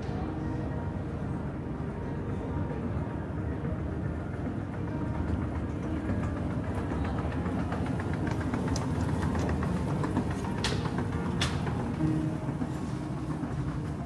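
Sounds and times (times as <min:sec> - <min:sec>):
faint clicks and rattles: 0:04.9 - 0:12.8.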